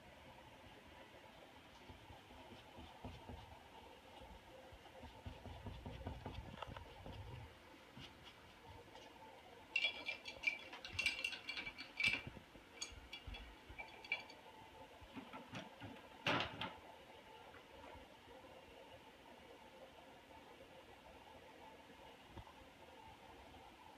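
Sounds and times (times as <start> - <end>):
light clinks and taps: 9.7 - 14.4.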